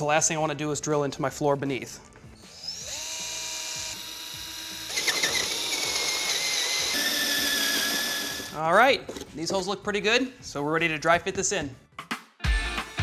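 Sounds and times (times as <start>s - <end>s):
cordless drill whining: 2.4s - 8.6s.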